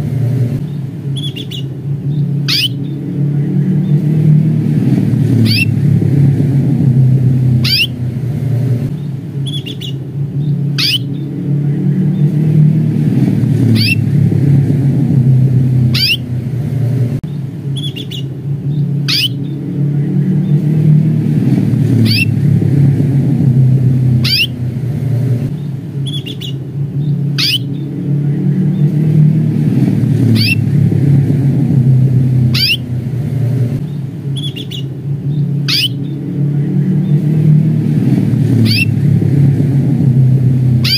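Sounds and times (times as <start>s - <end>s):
loud low rumble: 0.0s - 40.9s
canary chirping: 0.6s - 3.0s, 5.3s - 5.8s, 7.6s - 8.0s, 9.0s - 12.4s, 13.6s - 14.1s, 15.8s - 16.3s, 17.3s - 19.6s, 21.9s - 22.4s, 24.2s - 24.7s, 25.6s - 27.9s, 30.2s - 30.7s, 32.4s - 33.0s, 33.8s - 36.2s, 38.6s - 39.0s.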